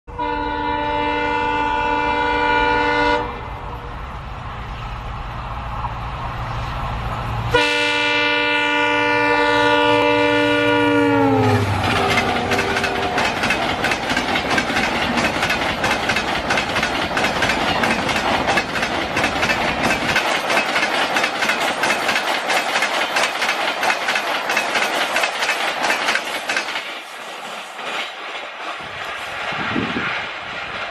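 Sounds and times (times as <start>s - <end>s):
locomotive air horn: 0.1s - 3.6s, 7.5s - 13.3s
train coaches rushing past: 0.2s - 30.9s.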